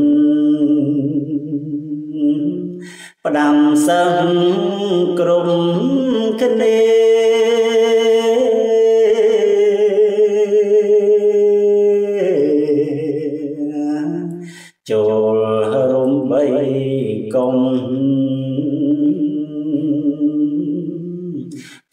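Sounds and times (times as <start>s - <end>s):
man chanting verse: 3.2s - 6.8s.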